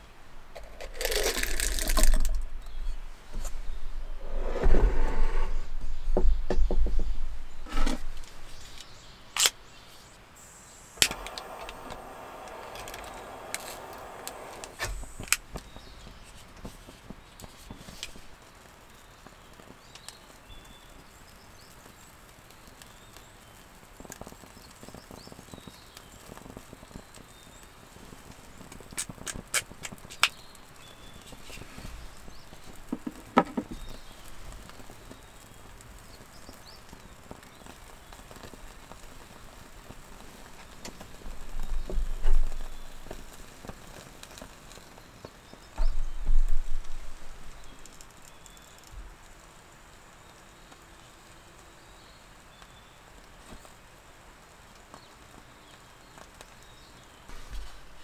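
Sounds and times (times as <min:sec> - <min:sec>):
gas lighter clicking: 0:11.0 - 0:15.4.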